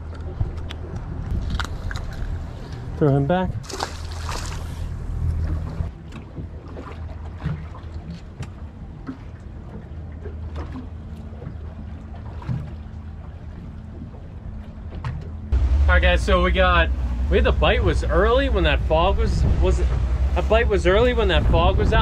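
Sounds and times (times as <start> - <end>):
light wind: 0.0 - 22.0
water noise: 0.0 - 22.0
steady low hum: 6.9 - 22.0.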